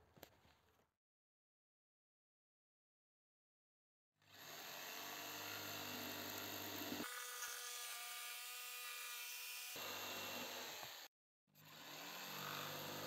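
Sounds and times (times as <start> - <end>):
electric jigsaw cutting wood: 4.2 - 13.0.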